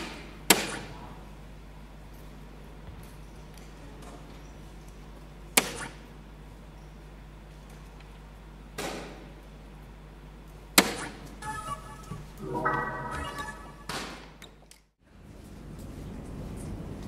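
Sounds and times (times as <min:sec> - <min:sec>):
darts hitting electronic dartboard: 0:12.6 - 0:14.3.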